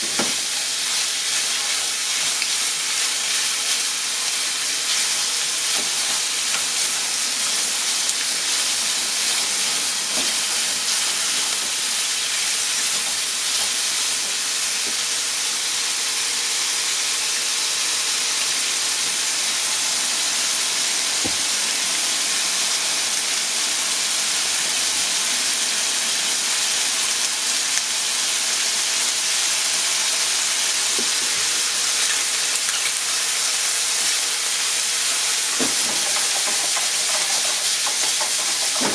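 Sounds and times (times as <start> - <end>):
chicken sizzling in oil: 0.0 - 38.9.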